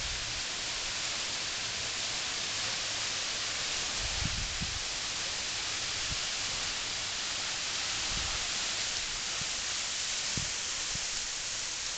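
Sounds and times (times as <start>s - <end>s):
waterfall rushing hiss: 0.0s - 11.9s.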